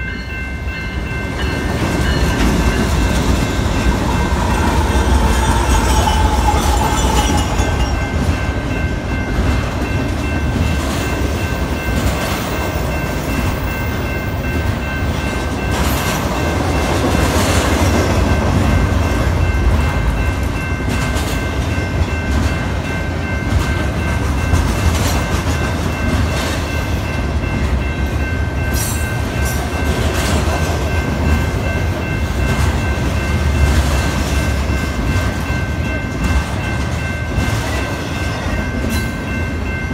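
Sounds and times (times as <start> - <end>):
locomotive engine tone: 0.0 - 9.4
crossing warning bell ringing: 0.0 - 39.9
freight train wheels rumbling on rail: 0.0 - 39.9.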